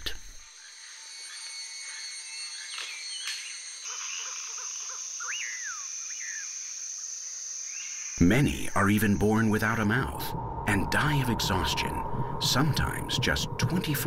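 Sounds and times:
bird calls: 0.0s - 9.7s
high-pitched insect drone: 0.2s - 14.0s
rising and falling bird whistle: 5.2s - 6.6s.

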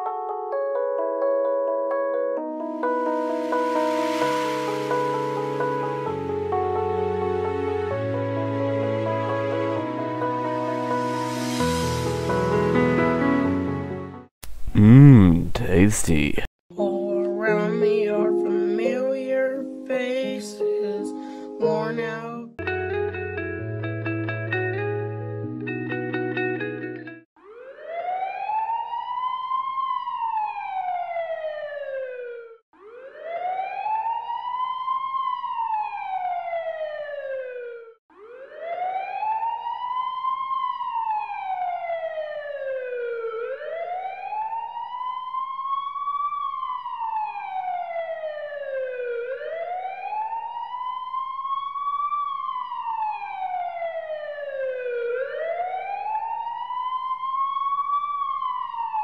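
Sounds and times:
siren wailing slowly: 27.4s - 59.0s.

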